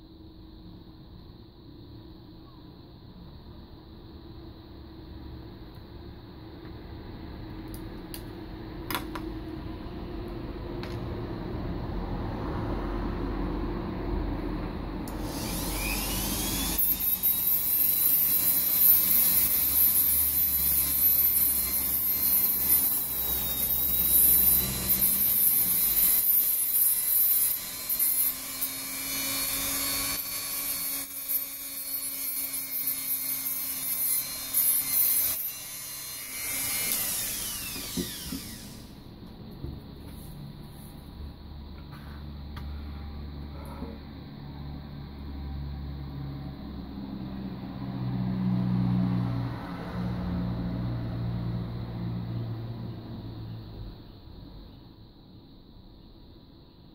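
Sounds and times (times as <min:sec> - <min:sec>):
rotary tool whining: 0:15.1 - 0:39.2.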